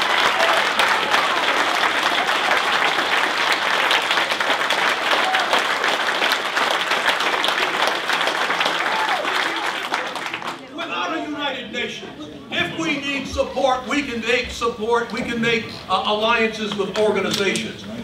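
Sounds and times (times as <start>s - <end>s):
audience clapping: 0.0s - 10.7s, 16.7s - 17.7s.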